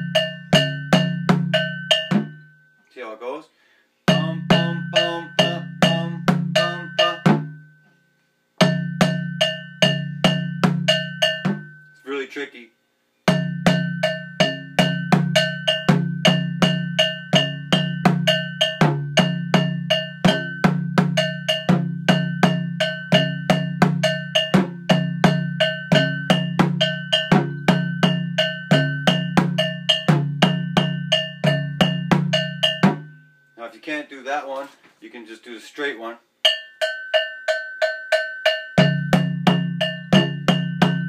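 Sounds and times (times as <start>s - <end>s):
metal bell strikes: 0.0s - 2.8s, 4.1s - 7.9s, 8.6s - 12.0s, 13.3s - 33.6s, 36.5s - 41.0s
low drum tones: 4.1s - 7.7s, 13.3s - 33.2s, 38.8s - 41.0s.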